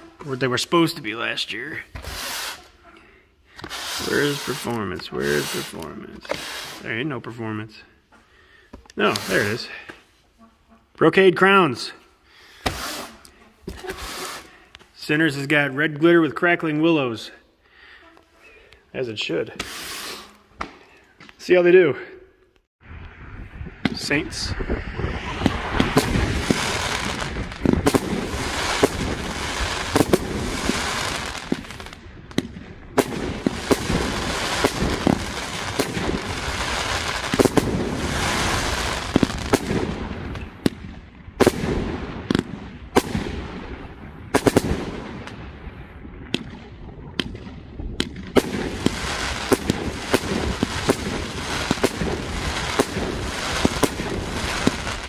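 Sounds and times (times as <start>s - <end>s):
firework bangs: 3.6s - 6.8s, 24.9s - 46.6s, 47.2s - 55.0s.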